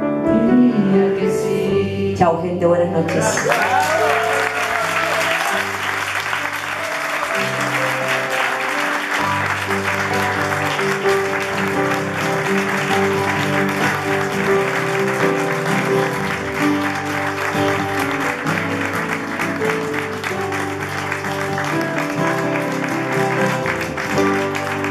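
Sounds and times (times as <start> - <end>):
upright piano chords: 0.0 - 24.9
audience applauding: 3.1 - 24.9.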